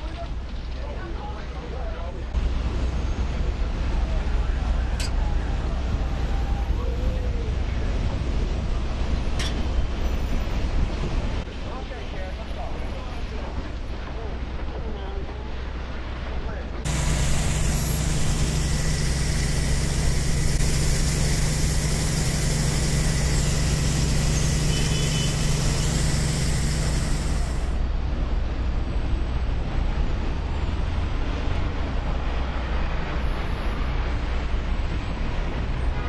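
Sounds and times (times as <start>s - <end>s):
large engine rumbling: 0.0s - 36.0s
high hiss: 16.9s - 27.8s.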